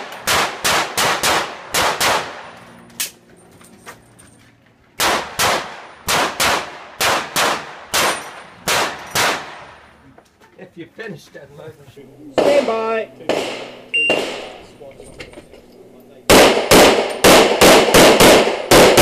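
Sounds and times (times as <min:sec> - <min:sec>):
pistol shots with echo: 0:00.0 - 0:02.6, 0:05.0 - 0:09.9, 0:12.4 - 0:14.8, 0:16.3 - 0:19.0.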